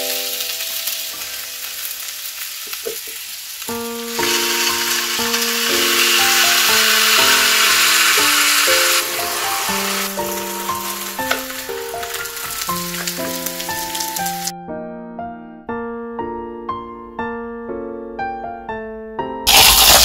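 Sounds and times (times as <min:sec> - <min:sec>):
chicken sizzling in waffle iron: 0:00.0 - 0:14.5, 0:19.5 - 0:20.0
piano background music: 0:00.0 - 0:20.0.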